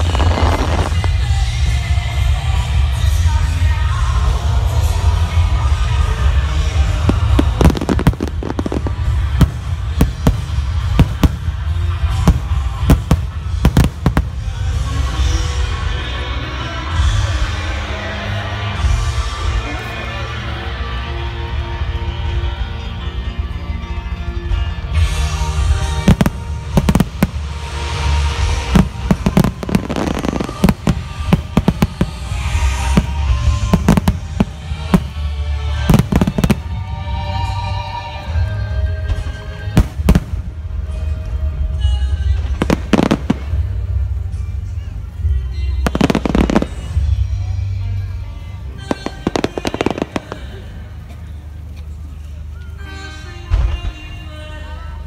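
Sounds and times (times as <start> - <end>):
fireworks bangs: 0.0 - 1.8, 6.8 - 15.3, 25.8 - 37.2, 42.4 - 43.9, 45.8 - 47.2, 48.8 - 50.8
steady low rumble: 0.0 - 17.7, 25.2 - 52.8
fireworks shells bursting: 26.0 - 36.8.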